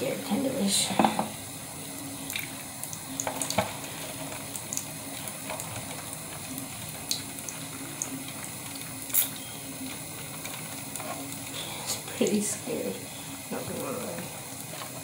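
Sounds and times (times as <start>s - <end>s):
steady hiss: 0.0s - 15.0s
water splashing in a bowl: 2.2s - 12.4s.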